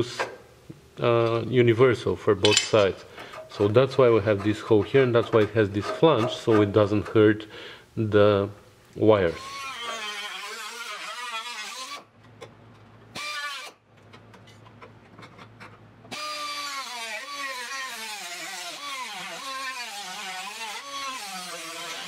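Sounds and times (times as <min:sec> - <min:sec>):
cutoff wheel cutting sheet steel: 0:09.4 - 0:12.1, 0:16.1 - 0:22.0.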